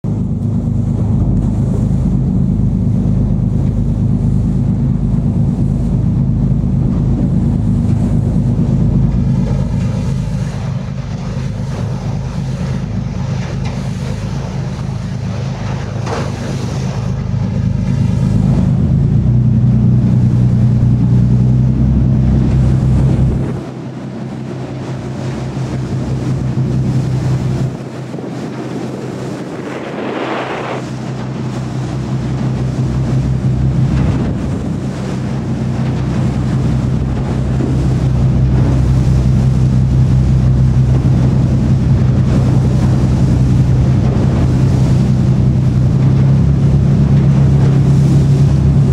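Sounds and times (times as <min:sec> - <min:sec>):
boat engine droning: 0:00.0 - 0:48.9
water rushing along hull: 0:00.0 - 0:48.9
wind buffeting microphone: 0:00.0 - 0:48.9.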